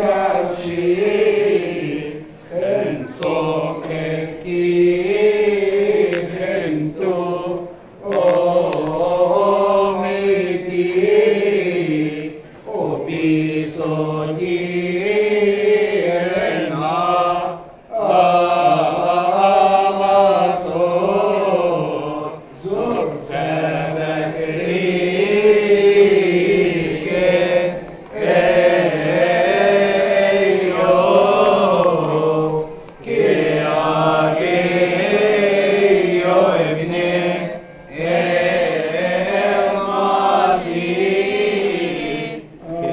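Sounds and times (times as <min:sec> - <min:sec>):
men chanting a hymn: 0:00.0 - 0:42.9.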